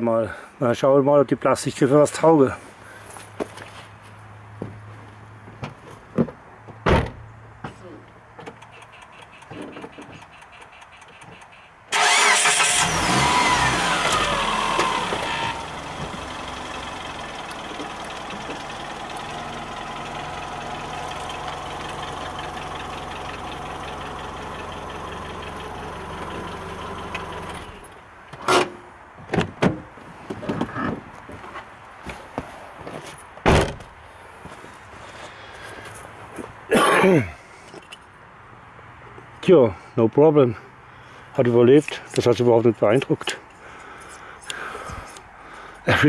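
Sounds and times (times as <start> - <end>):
car engine starting and idling: 10.3 - 28.0.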